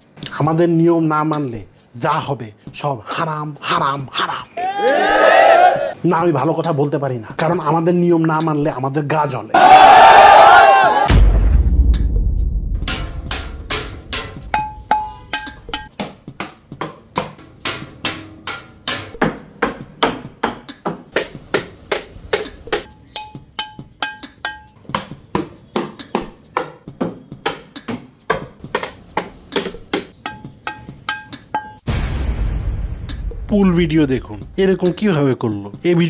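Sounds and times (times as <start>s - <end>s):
wooden spatula drumming on objects: 12.8s - 31.9s.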